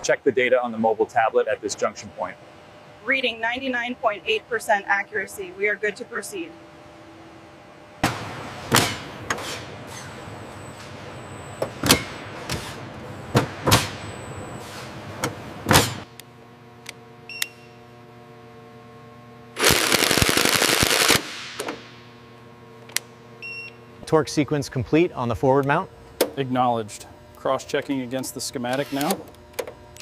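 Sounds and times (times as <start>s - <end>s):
machine hum: 0.0s - 30.0s.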